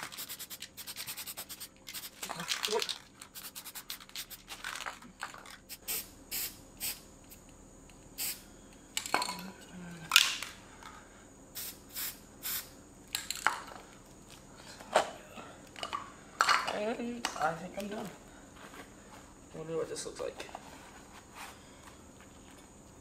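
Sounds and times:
spray-paint can hissing: 0:00.0 - 0:02.4, 0:03.3 - 0:04.5, 0:05.7 - 0:07.0, 0:08.2 - 0:08.4, 0:11.6 - 0:12.7.

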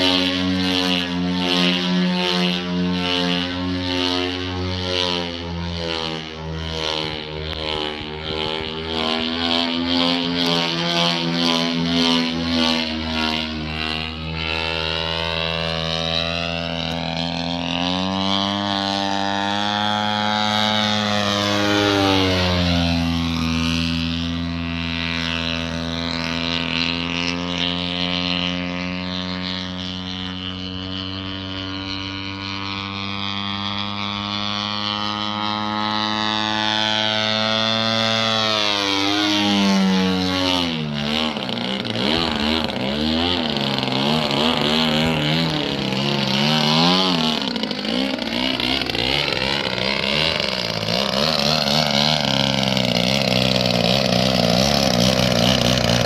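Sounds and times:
model plane engine running: 0:00.0 - 0:56.0.

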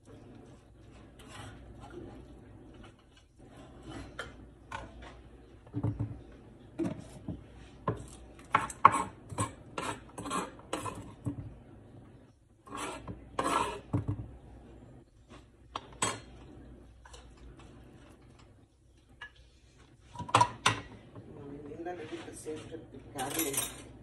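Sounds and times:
metal spoon scraping plastic board: 0:01.0 - 0:02.2, 0:08.6 - 0:11.1, 0:12.7 - 0:13.9.

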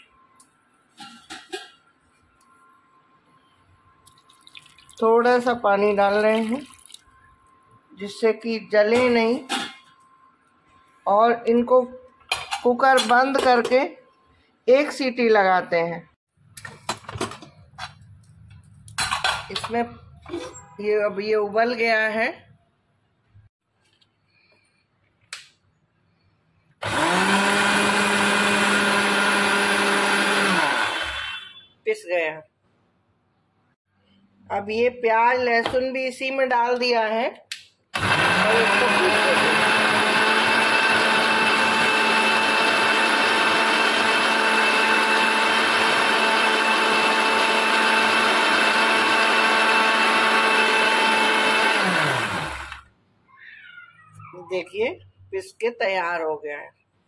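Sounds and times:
mixer grinder motor running: 0:26.8 - 0:31.4, 0:38.0 - 0:52.9.

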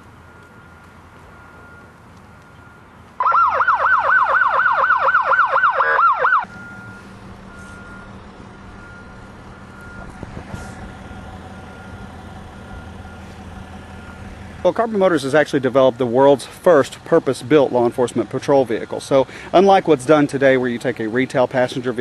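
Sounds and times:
police siren yelp: 0:03.2 - 0:14.2.

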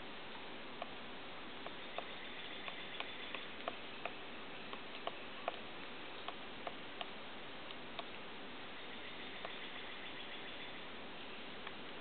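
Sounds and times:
woodpecker tapping on wood: 0:01.6 - 0:07.2.

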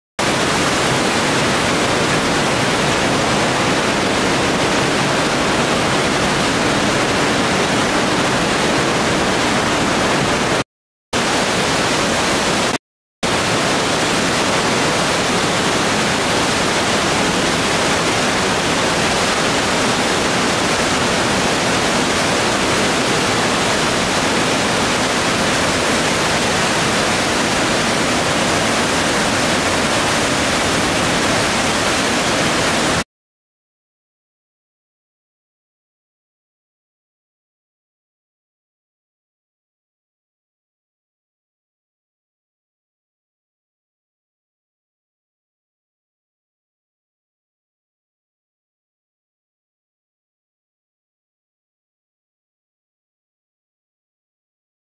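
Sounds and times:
waterfall rushing: 0:00.2 - 0:10.6, 0:11.2 - 0:33.0.

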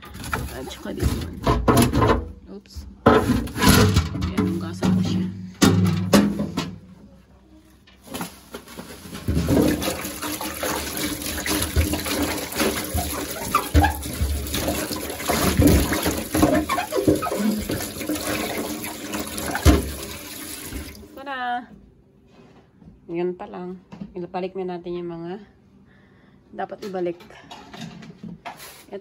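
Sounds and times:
tap water splashing on plastic: 0:09.2 - 0:21.0.

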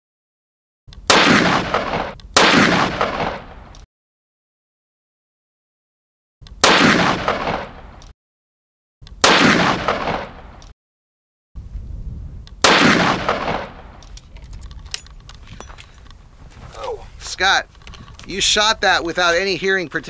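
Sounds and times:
rifle shots: 0:01.0 - 0:03.7, 0:06.6 - 0:08.0, 0:09.2 - 0:10.6, 0:12.6 - 0:14.0
metallic clicks of rifle action: 0:14.0 - 0:16.2, 0:17.7 - 0:18.4.

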